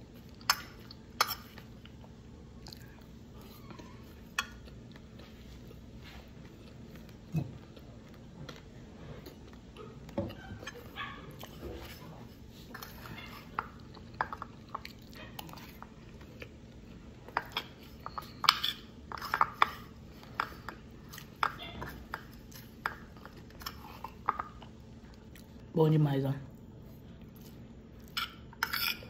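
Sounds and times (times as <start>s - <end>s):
chewing: 0.1s - 25.7s
metal spoon scraping plate: 28.2s - 29.0s.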